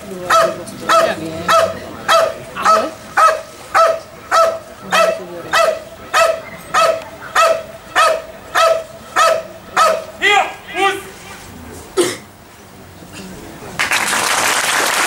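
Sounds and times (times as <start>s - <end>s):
dog barking rhythmically: 0.2s - 10.2s.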